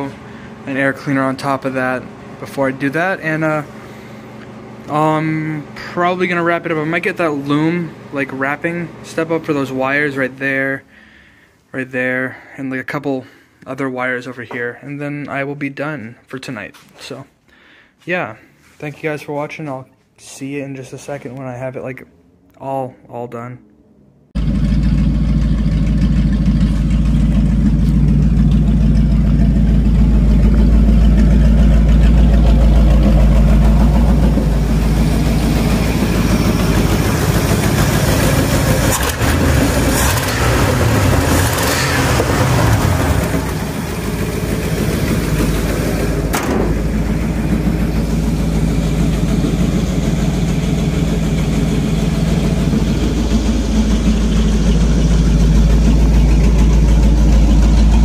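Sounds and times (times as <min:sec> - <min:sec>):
pickup engine idling: 0:00.0 - 0:11.4, 0:24.4 - 0:58.0.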